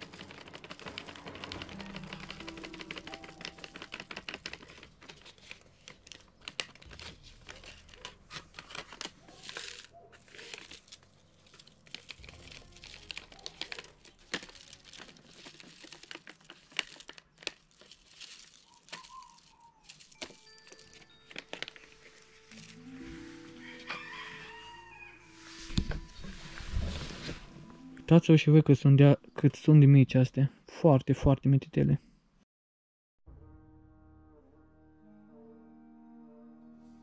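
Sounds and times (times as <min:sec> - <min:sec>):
paper packets crinkling: 0:00.0 - 0:24.8.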